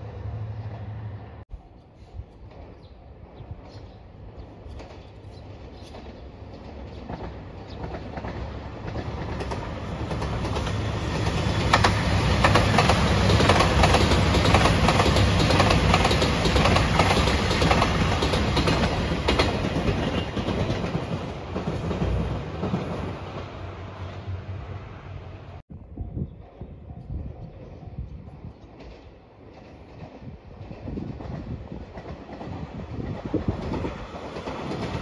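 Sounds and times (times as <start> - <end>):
diesel train engines running: 0.0 - 25.6
wheels clicking over rail joints: 3.6 - 23.1.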